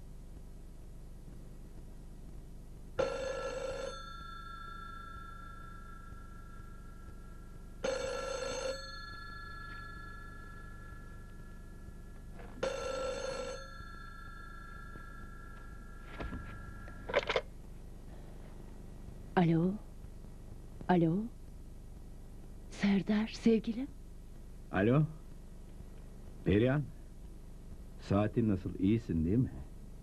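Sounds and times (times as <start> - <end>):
telephone bell ringing: 3.0 - 17.5.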